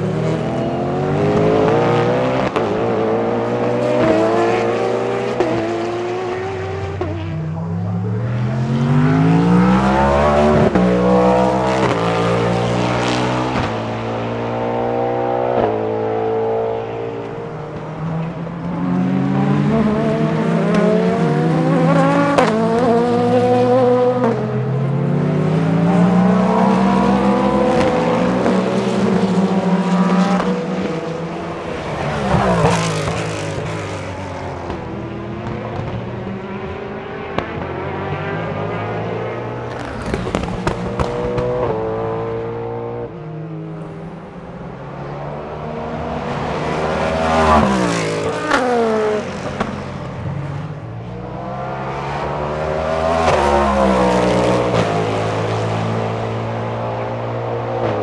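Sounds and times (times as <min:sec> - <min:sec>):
race car engine accelerating: 0:00.0 - 0:58.0
race car passing by: 0:00.1 - 0:58.0.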